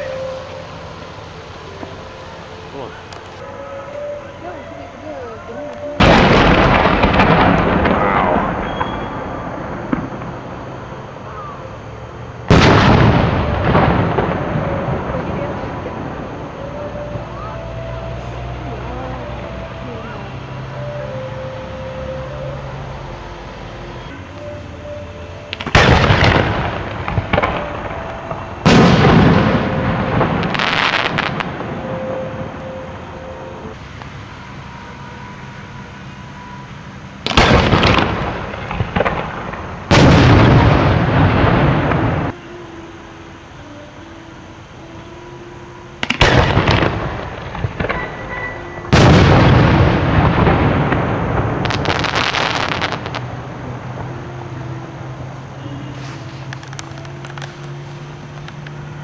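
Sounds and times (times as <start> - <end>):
firework crackling hiss: 0.0 - 22.7, 24.3 - 59.0
firework booms echoing: 6.0 - 10.6, 12.4 - 16.6, 25.5 - 32.6, 37.2 - 42.3, 46.0 - 53.2.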